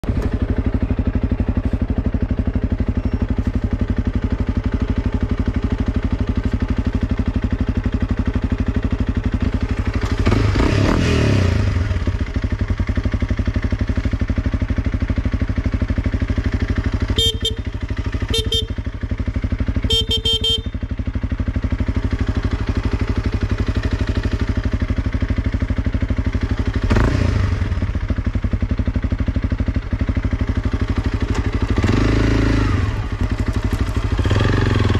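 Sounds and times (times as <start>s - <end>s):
motorcycle engine idling and revving: 0.0s - 34.9s
motorcycle horn beeps: 16.9s - 21.5s.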